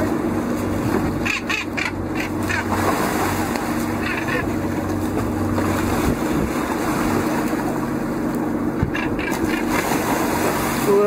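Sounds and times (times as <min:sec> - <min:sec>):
boat engine humming: 0:00.0 - 0:11.0
water splashing: 0:00.0 - 0:11.0
wind noise on microphone: 0:05.9 - 0:06.7.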